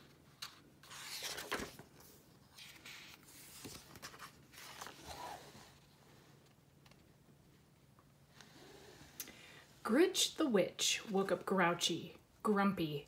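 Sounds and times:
book pages rustling: 0:00.0 - 0:07.2.

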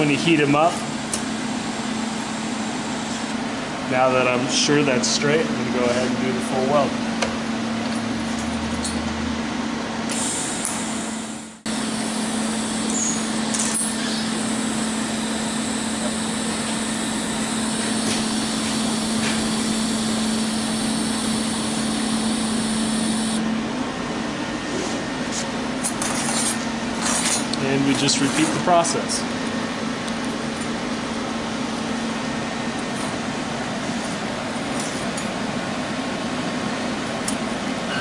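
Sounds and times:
steady hum: 0:00.0 - 0:38.0
welding arc sizzling: 0:11.7 - 0:23.4.

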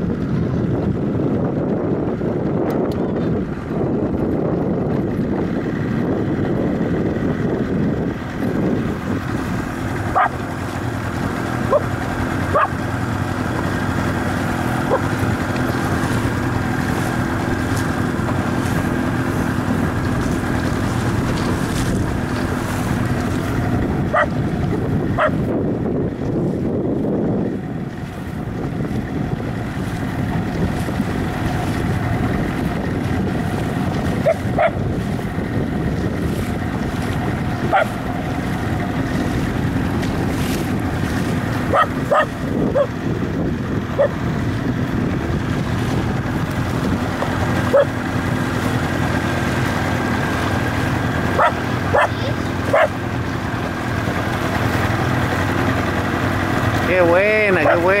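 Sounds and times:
choppy water splashing: 0:00.0 - 0:58.0
motorboat engine running: 0:00.0 - 0:58.0
wind: 0:00.0 - 0:58.0
dog yipping: 0:10.1 - 0:10.4, 0:11.7 - 0:11.9, 0:12.5 - 0:12.8, 0:24.1 - 0:24.3, 0:25.2 - 0:25.4, 0:34.2 - 0:34.8, 0:37.7 - 0:38.0, 0:41.7 - 0:42.9, 0:47.7 - 0:47.9, 0:51.4 - 0:52.9.

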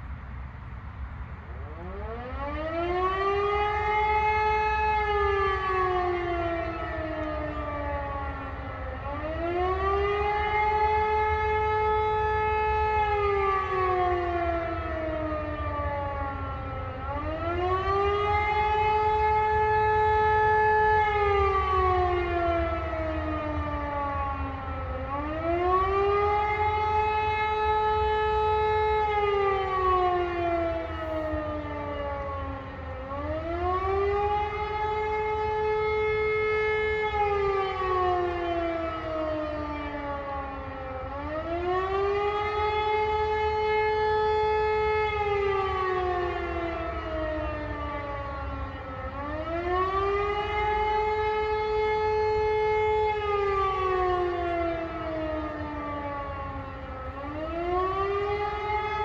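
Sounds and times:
wailing civil defence siren: 0:00.0 - 0:59.0.

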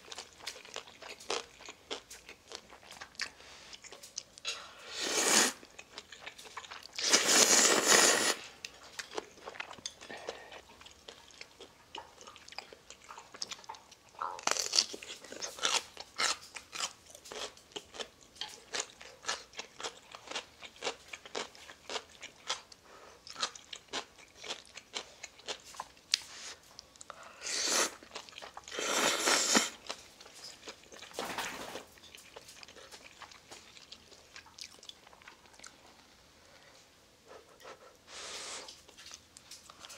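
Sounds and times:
chewing and crunching: 0:00.0 - 0:04.8, 0:05.6 - 0:36.8, 0:38.7 - 0:39.9
person slurping noodles: 0:04.8 - 0:05.6, 0:07.0 - 0:08.4, 0:27.4 - 0:28.0, 0:28.7 - 0:29.8.

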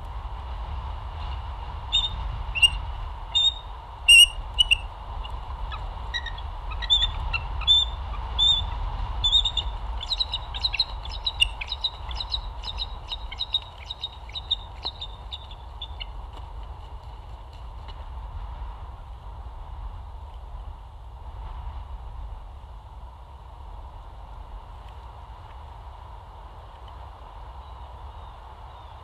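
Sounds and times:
eagles chirping: 0:01.9 - 0:16.3.

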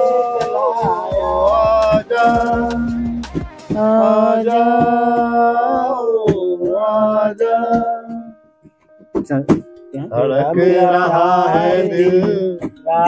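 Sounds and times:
men singing unaccompanied: 0:00.0 - 0:08.3, 0:10.1 - 0:13.0.

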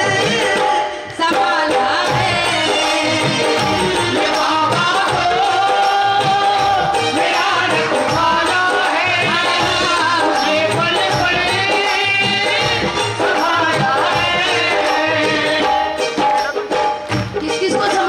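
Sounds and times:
steady drum beat: 0:00.0 - 0:18.0.

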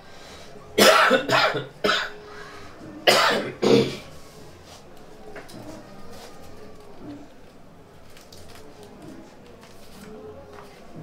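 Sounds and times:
man coughing: 0:00.8 - 0:02.2, 0:03.1 - 0:04.0.

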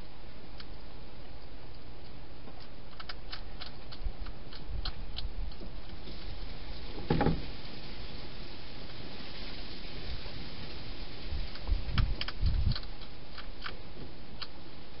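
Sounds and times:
hedgehog crunching food: 0:00.5 - 0:06.5, 0:11.2 - 0:15.0.

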